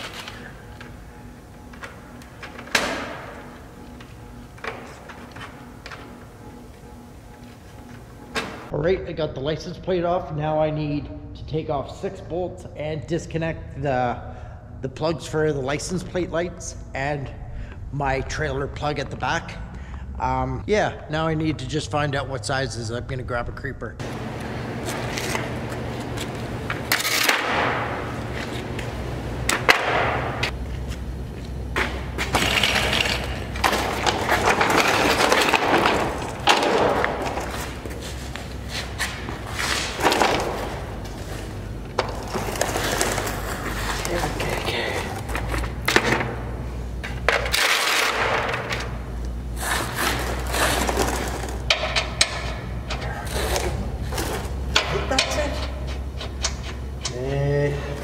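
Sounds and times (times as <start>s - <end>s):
steady low hum: 0.0s - 58.0s
scraping and rustling under truck: 30.2s - 57.3s.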